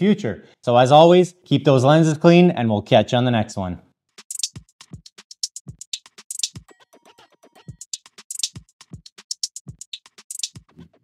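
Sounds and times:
fast hi-hat ticks: 0:04.1 - 0:10.7.

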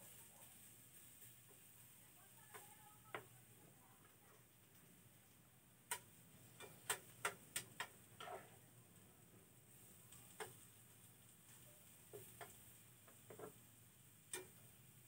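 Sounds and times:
tongs clicking against a frying pan: 0:02.4 - 0:03.4, 0:05.8 - 0:08.6, 0:10.0 - 0:14.9.

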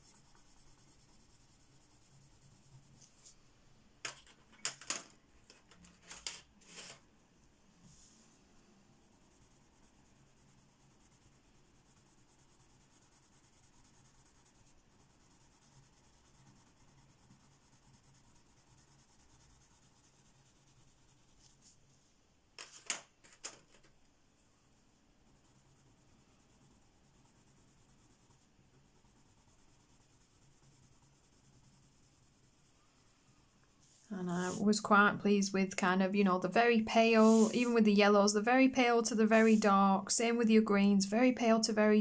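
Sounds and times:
pencil scratching on paper: 0:00.0 - 0:03.4, 0:05.8 - 0:07.0, 0:09.0 - 0:21.7, 0:25.3 - 0:35.1, 0:36.2 - 0:39.8.

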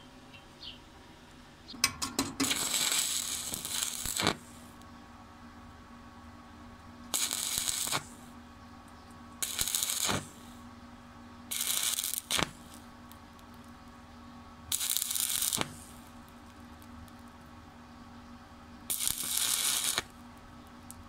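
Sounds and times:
welding arc crackling: 0:01.8 - 0:04.8, 0:07.1 - 0:08.3, 0:09.4 - 0:10.6, 0:11.5 - 0:13.8, 0:14.7 - 0:17.5, 0:18.9 - 0:21.0.

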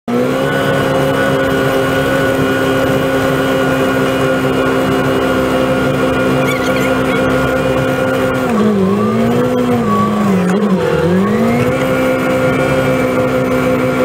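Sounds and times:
snow blower engine drone: 0:00.1 - 0:14.0
high-pitched whine: 0:06.0 - 0:12.8.

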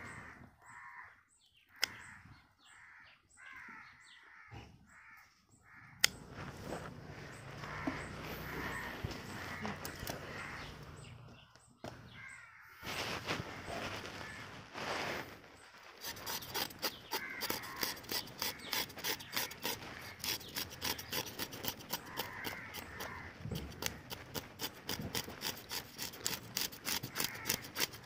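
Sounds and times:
knife scraping fish scales: 0:07.4 - 0:11.0, 0:16.0 - 0:28.0.

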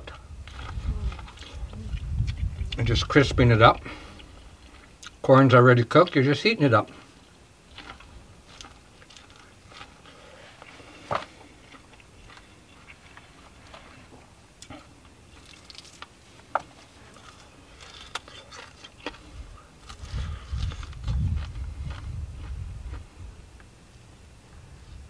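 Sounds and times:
person chewing corn on the cob: 0:00.0 - 0:02.8, 0:03.7 - 0:05.2, 0:07.0 - 0:23.1
wind rumbling on microphone: 0:00.0 - 0:04.8, 0:19.2 - 0:25.0.

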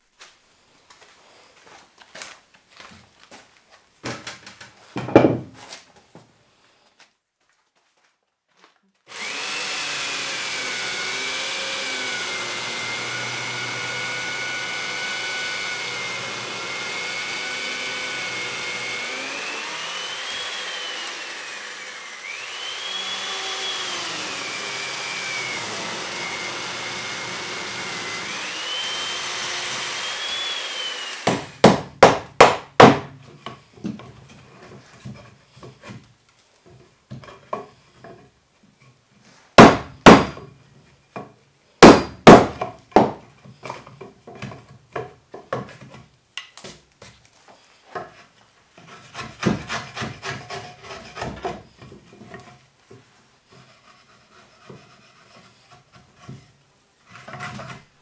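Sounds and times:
power tool cutting timber: 0:09.1 - 0:33.0.

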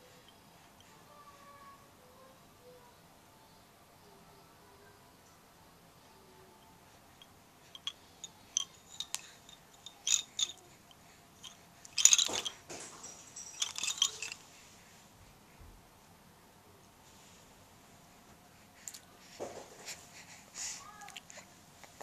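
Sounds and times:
baby rattle toy clacking: 0:07.7 - 0:14.4.

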